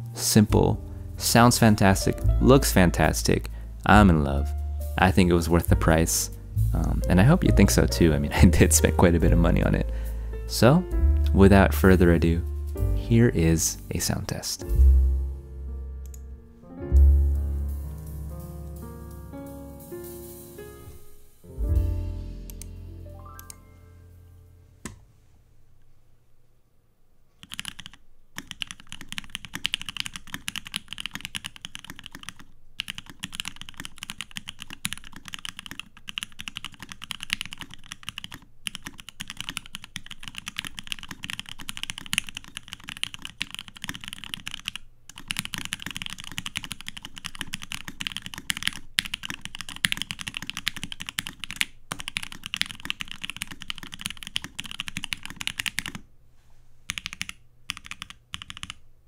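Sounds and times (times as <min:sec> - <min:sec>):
mechanical keyboard typing: 0:27.4 - 0:56.0, 0:56.9 - 0:58.8.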